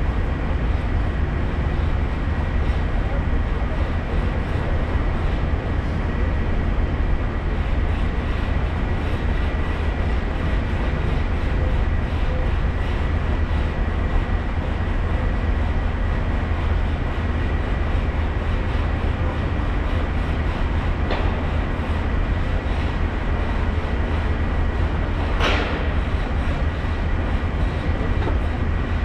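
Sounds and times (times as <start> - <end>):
high steady whine: 0.0 - 29.0.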